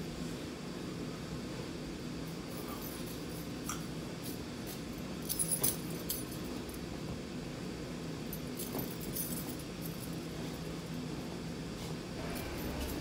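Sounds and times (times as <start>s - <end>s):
low room hum: 0.0s - 13.0s
light jingling clinks: 2.3s - 6.8s, 8.4s - 10.8s
bed being made: 8.4s - 13.0s.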